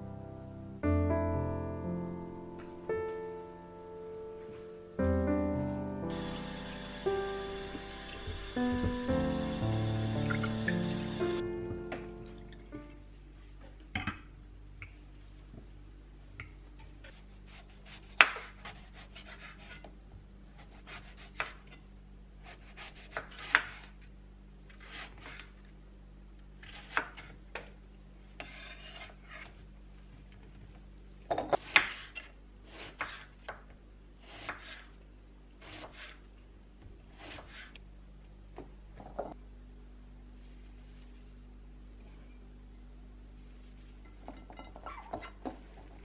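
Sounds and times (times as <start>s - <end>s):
knife cutting on wooden board: 28.4s - 29.6s, 37.2s - 37.8s.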